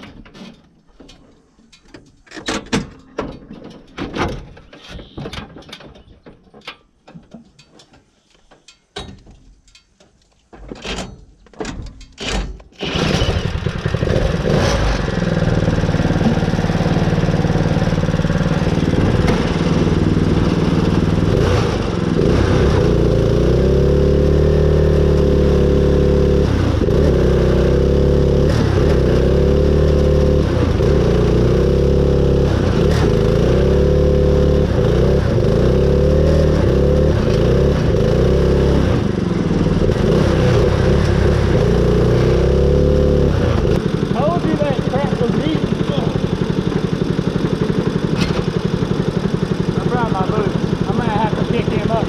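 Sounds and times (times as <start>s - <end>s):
mower engine running: 12.2s - 52.0s.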